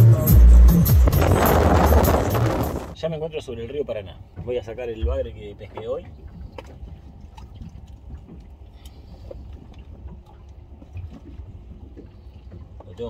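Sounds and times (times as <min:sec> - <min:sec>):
steady low rumble: 0:00.0 - 0:03.4
water sloshing and dripping: 0:04.2 - 0:13.0
small splashes: 0:05.6 - 0:13.0.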